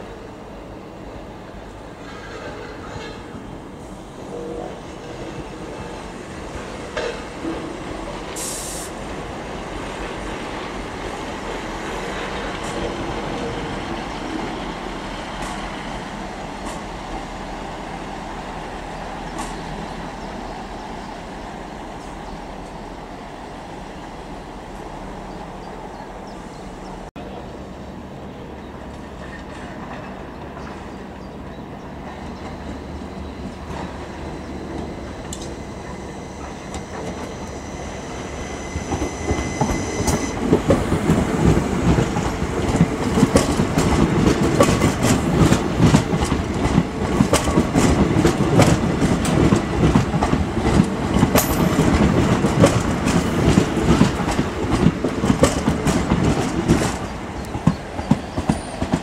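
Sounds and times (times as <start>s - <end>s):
diesel train rumbling: 0.0s - 59.0s
train wheels clattering over joints: 38.8s - 59.0s.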